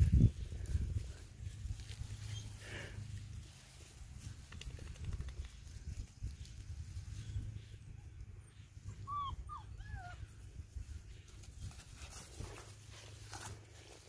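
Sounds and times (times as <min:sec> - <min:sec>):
puppy whimpering: 0:08.9 - 0:10.3.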